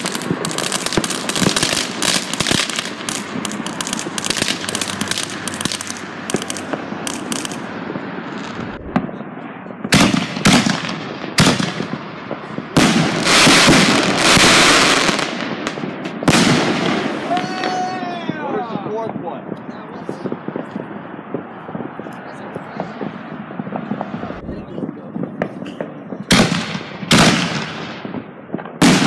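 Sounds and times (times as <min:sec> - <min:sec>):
crackling hiss of aerial burst: 0:00.0 - 0:08.9
fireworks bangs: 0:00.0 - 0:29.0
fireworks crackling: 0:00.0 - 0:29.0.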